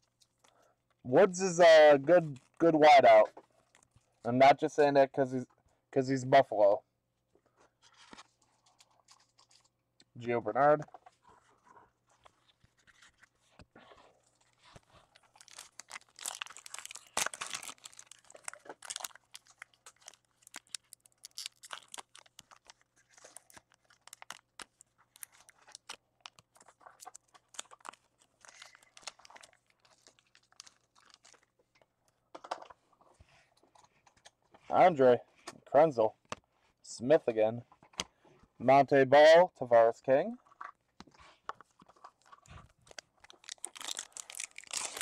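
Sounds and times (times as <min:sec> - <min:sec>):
foil pack tearing: 0:15.2 - 0:31.4, 0:43.2 - 0:45.0.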